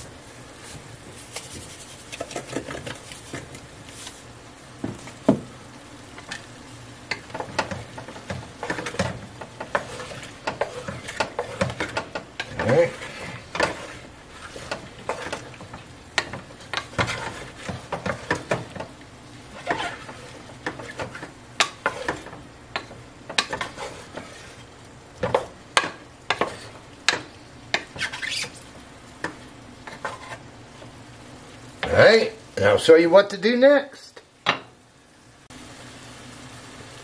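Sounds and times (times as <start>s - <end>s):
food sizzling in oil: 0.0s - 37.0s
wooden spatula scraping a pot: 0.6s - 4.3s, 7.1s - 30.5s.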